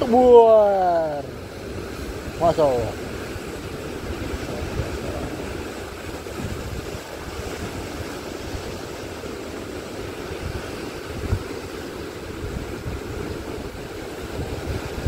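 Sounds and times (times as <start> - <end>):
surf breaking over rocks: 0.0 - 15.0.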